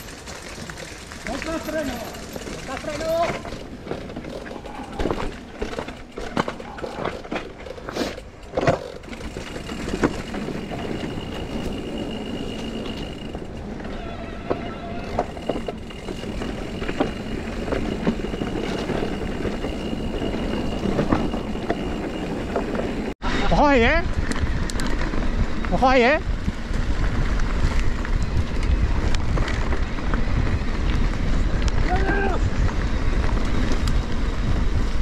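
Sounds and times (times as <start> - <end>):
bike rattling over rough ground: 0.0 - 35.0
tyre noise on trail: 0.0 - 35.0
wind noise: 9.0 - 35.0.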